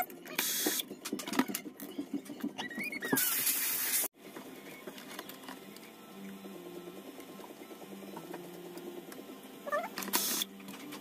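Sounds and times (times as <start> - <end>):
clicks and rattles of parts: 0.2 - 3.6.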